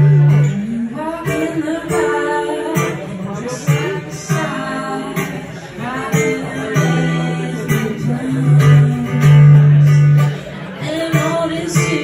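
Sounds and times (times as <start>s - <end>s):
acoustic guitar strumming: 0.0s - 12.0s
woman singing: 0.0s - 12.0s.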